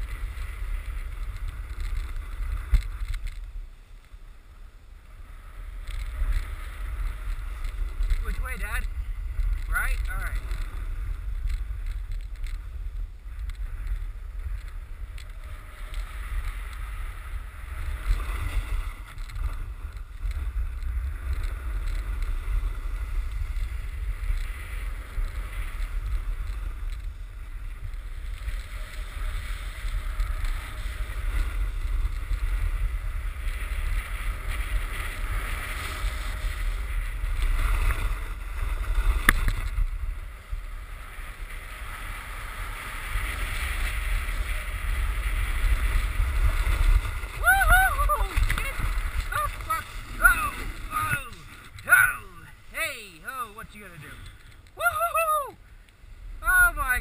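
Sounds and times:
snowboard sliding over snow: 0:00.0 - 0:57.0
wind buffeting microphone: 0:43.2 - 0:52.8.

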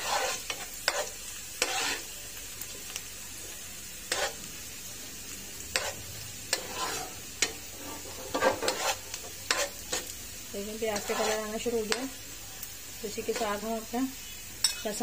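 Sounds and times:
steel spoon scraping pan: 0:00.0 - 0:02.1, 0:04.1 - 0:04.4, 0:05.7 - 0:10.1, 0:10.9 - 0:12.2
onions sizzling in hot oil: 0:00.0 - 0:15.0.

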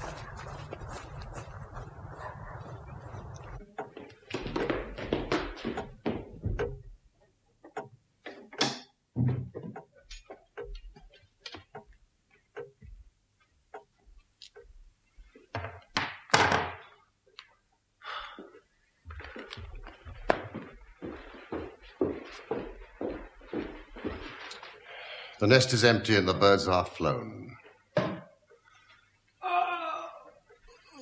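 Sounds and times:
knocks and thuds at door: 0:09.1 - 0:09.8.

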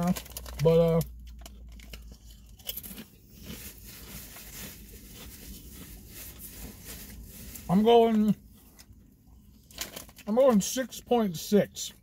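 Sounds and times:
chewing potato chip: 0:00.0 - 0:06.8.

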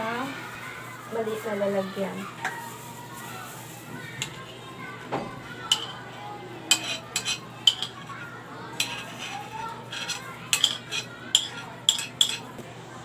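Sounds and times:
utensil scraping ceramic bowl: 0:06.7 - 0:08.1, 0:08.8 - 0:12.5.

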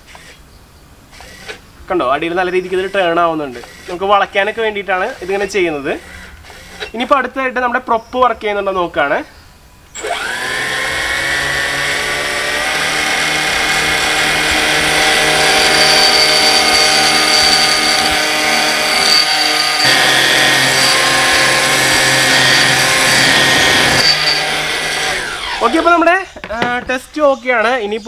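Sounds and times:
electric motor whine: 0:10.0 - 0:25.9.

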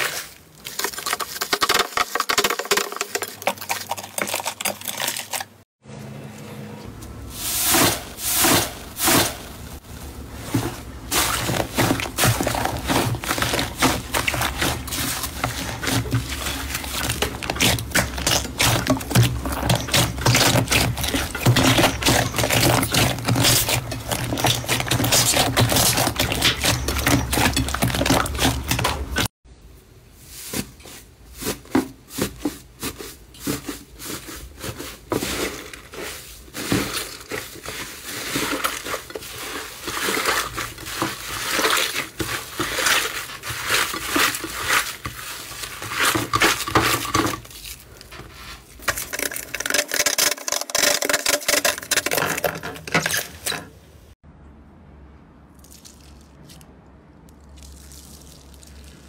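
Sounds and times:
slime crackling: 0:57.4 - 0:59.0.

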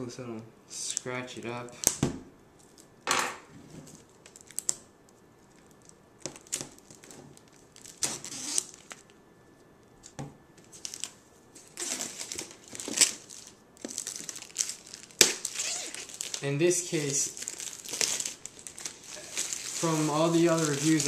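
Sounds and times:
plastic packaging crinkling: 0:03.9 - 0:09.2, 0:10.6 - 0:21.0.

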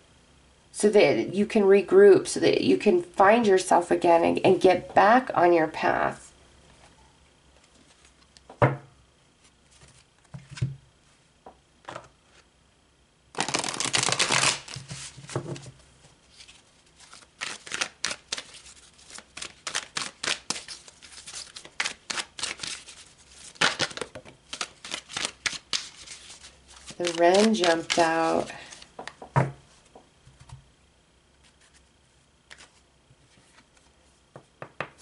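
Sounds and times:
cards being shuffled: 0:13.4 - 0:15.7, 0:16.3 - 0:29.4, 0:31.4 - 0:31.9, 0:32.5 - 0:33.9.

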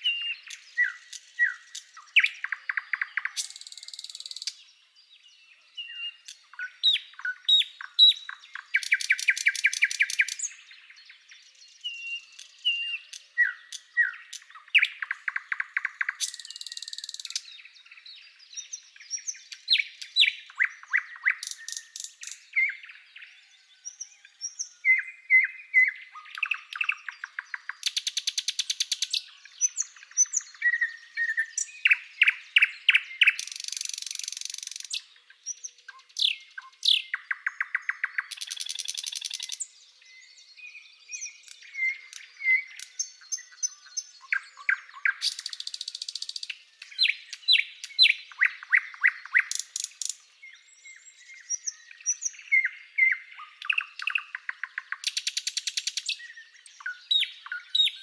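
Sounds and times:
nightingale singing: 0:00.0 - 0:58.0.

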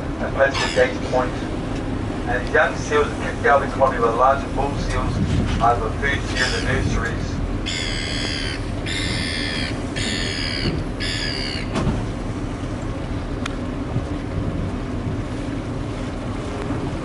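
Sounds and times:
boat engine rumbling: 0:00.0 - 0:17.0
water noise: 0:00.0 - 0:17.0
wind: 0:00.0 - 0:17.0.

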